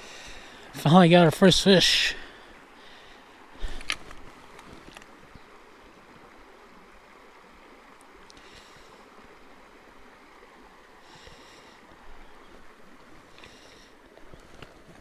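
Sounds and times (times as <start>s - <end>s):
creek running over rocks: 0.0s - 15.0s.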